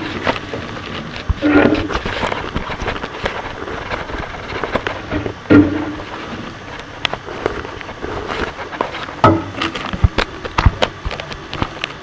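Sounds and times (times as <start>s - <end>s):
knocks and scraping in chimney flue: 0.0s - 12.0s
dull thuds: 5.0s - 6.2s.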